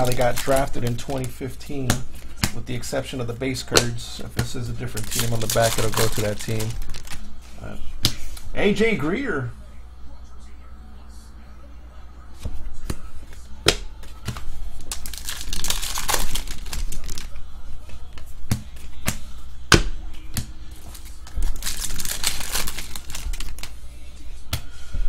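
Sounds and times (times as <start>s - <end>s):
cards rustling: 0.0s - 2.7s, 4.3s - 7.3s, 14.0s - 18.0s, 20.7s - 23.8s
wrapper tearing open: 5.0s - 7.2s, 14.8s - 17.3s, 20.9s - 23.7s
cards snapping: 13.7s - 17.4s, 20.4s - 23.8s.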